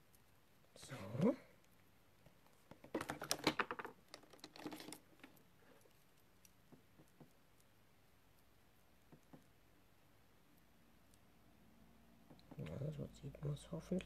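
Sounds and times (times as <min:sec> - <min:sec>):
small clicks and taps: 0:02.2 - 0:07.7, 0:09.0 - 0:09.6.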